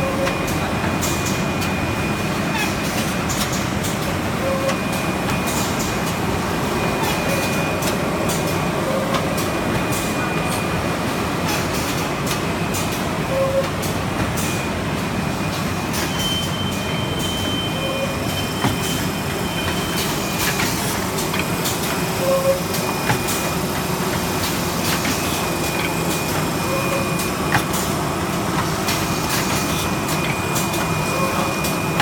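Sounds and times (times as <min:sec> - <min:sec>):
machine running: 0:13.9 - 0:32.0.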